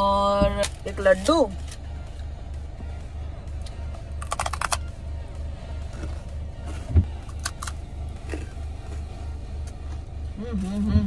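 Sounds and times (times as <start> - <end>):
low pulsing hum: 0.0 - 11.0
crunchy food chewing: 4.2 - 4.8.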